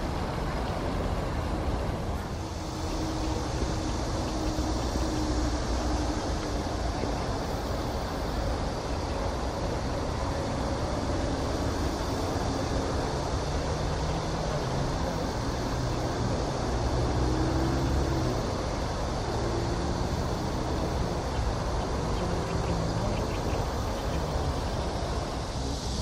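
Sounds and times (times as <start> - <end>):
faint low drone: 0.0 - 26.0
low outdoor rumble: 0.0 - 26.0.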